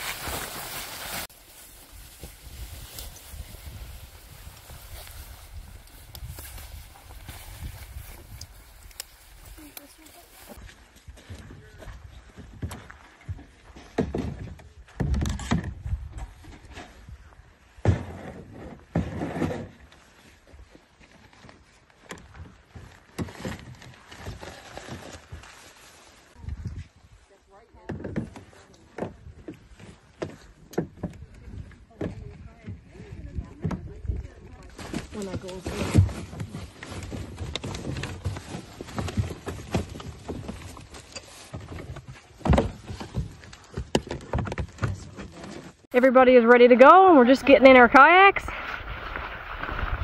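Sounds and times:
dry bag rustling: 0:00.0 - 0:05.7.

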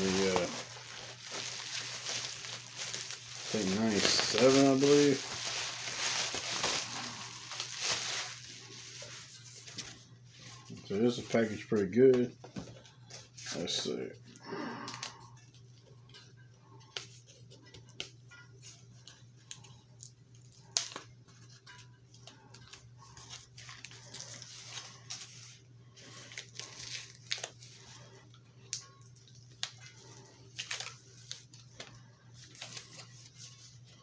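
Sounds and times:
cardboard tearing and crackling: 0:00.0 - 0:09.0, 0:26.3 - 0:27.6.

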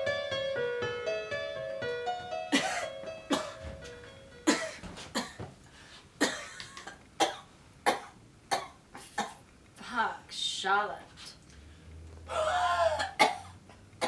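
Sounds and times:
keyboard tune: 0:00.0 - 0:04.6
woman coughing: 0:02.5 - 0:03.7, 0:04.5 - 0:05.4, 0:06.2 - 0:09.4, 0:12.4 - 0:13.6.

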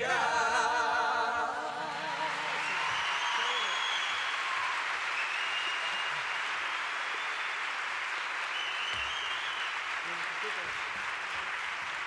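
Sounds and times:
audience applauding: 0:01.5 - 0:12.0
high whistles: 0:02.6 - 0:06.4, 0:08.5 - 0:09.8.

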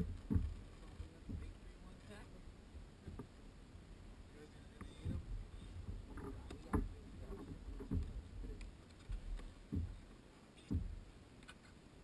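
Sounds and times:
water slapping against kayak hull: 0:00.0 - 0:01.8, 0:04.8 - 0:11.2.

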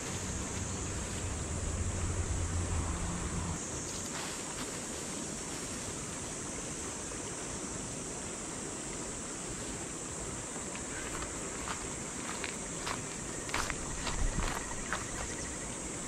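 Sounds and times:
river rushing: 0:00.0 - 0:03.8.

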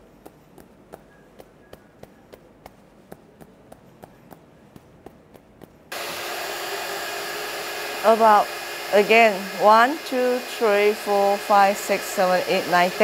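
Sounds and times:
fingertips tapping on head: 0:00.0 - 0:05.9
fan blowing: 0:05.8 - 0:13.0.

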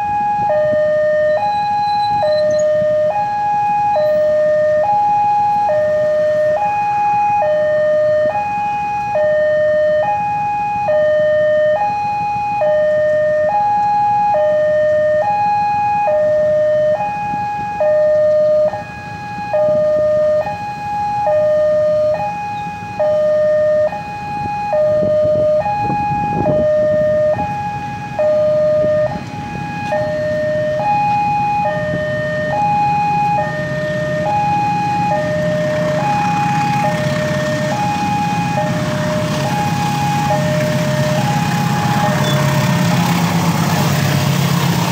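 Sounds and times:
two-tone crossing alarm: 0:00.0 - 0:44.9.

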